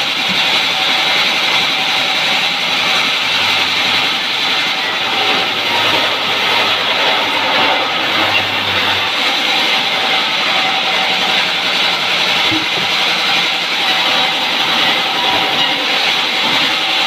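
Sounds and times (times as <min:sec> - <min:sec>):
band saw cutting log: 0:00.0 - 0:17.0.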